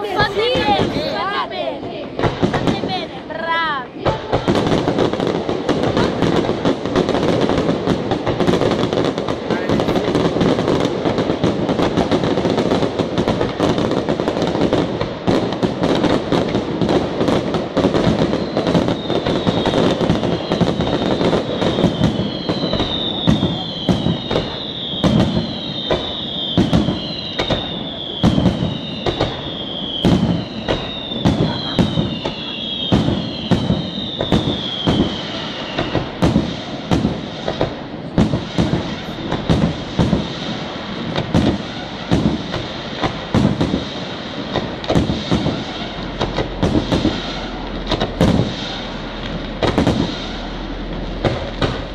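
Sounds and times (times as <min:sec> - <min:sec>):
firework bursts crackling and banging: 0:00.0 - 0:51.9
falling firework whistles: 0:17.8 - 0:51.9.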